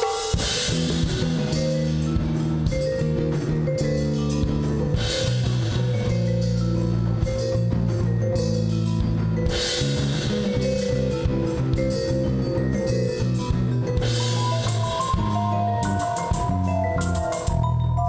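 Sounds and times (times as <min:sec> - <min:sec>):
cymbals washing: 0:00.0 - 0:07.5
drum kit: 0:00.0 - 0:18.0
mallet keyboard: 0:00.0 - 0:18.0
electric bass low notes: 0:00.4 - 0:18.0.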